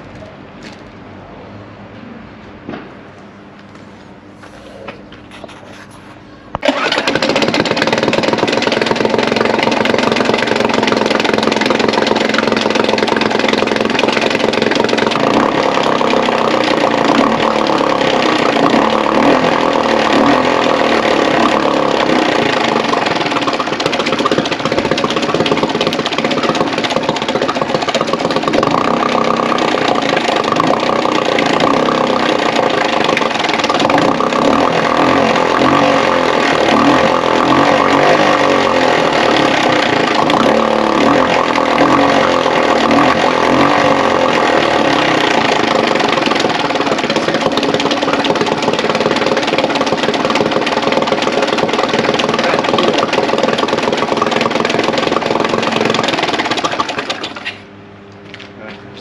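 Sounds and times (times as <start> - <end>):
outboard motor running: 6.6 - 57.7.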